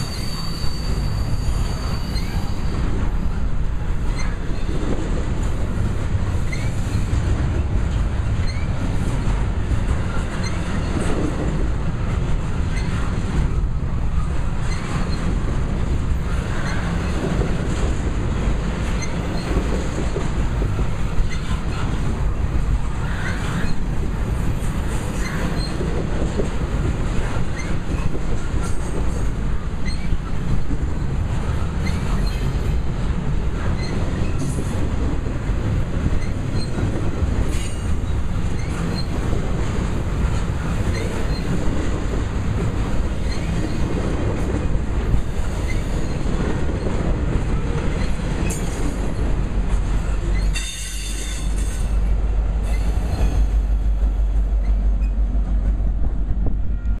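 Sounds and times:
high wheel squeals: 0.0 - 2.9
train wheels rumbling on rails: 0.0 - 57.0.

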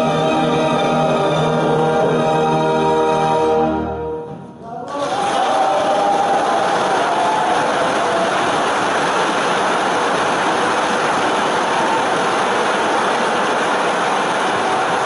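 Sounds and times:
audience applauding: 4.6 - 15.0.

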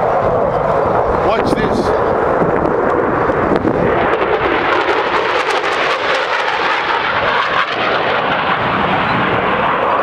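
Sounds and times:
fighter jet flying by: 0.0 - 10.0.

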